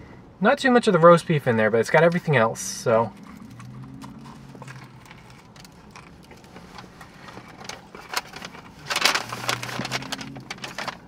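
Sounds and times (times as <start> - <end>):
chewing: 3.1 - 7.5
paper wrapper crackling rustle: 3.2 - 11.0.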